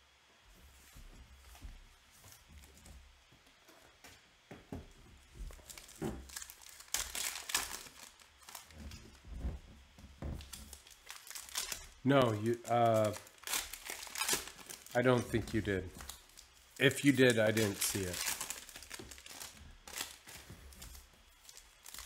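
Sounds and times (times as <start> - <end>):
foil wrapper tearing and crinkling: 5.5 - 9.1, 10.4 - 22.0.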